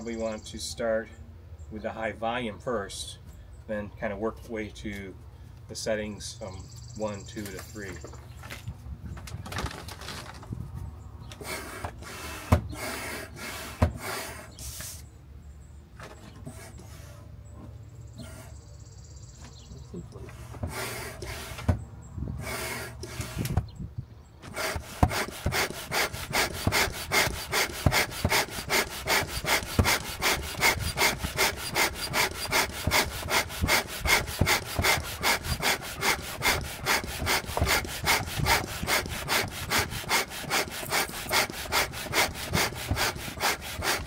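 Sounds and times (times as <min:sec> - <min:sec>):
hand pump whooshing air: 0:11.4 - 0:15.1, 0:20.3 - 0:23.7, 0:24.4 - 0:44.0.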